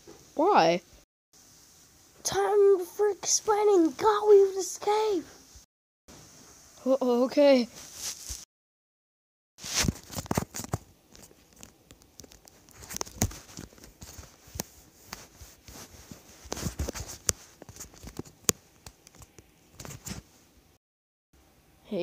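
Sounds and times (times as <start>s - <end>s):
rustling and crackling clicks: 9.6s - 20.3s.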